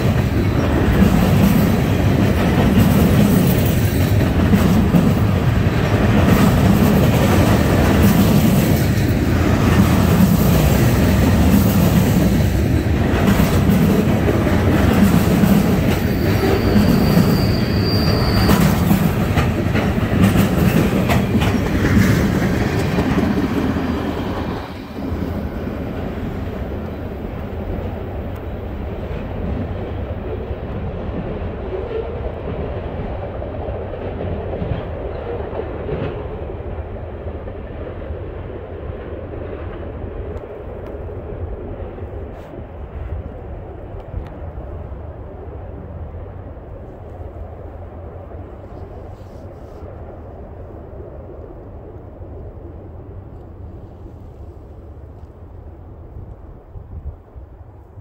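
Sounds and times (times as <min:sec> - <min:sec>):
wheels clicking over rail joints: 0:00.0 - 0:25.3
freight train rolling past: 0:00.0 - 0:58.0
high squeal: 0:15.9 - 0:18.9.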